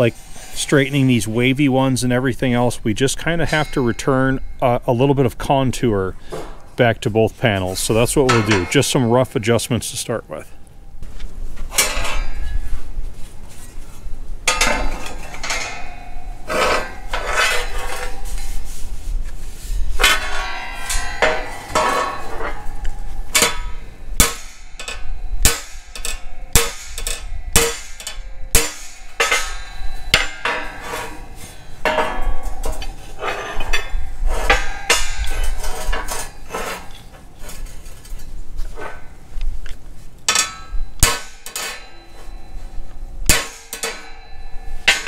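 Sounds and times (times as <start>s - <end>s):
sheet metal clanking on workbench: 8.0s - 9.3s, 11.7s - 12.6s, 14.5s - 18.5s, 20.0s - 38.0s, 40.3s - 42.6s, 43.3s - 45.0s.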